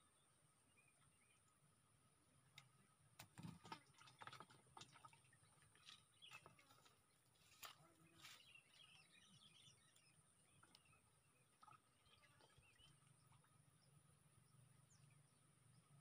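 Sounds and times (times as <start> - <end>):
faint bird chirps: 7.5 - 16.0.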